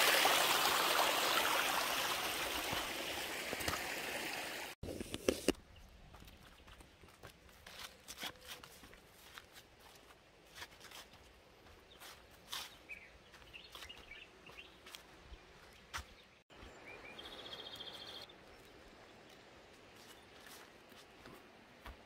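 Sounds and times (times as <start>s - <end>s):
quiet footsteps on grass: 5.2s - 22.0s.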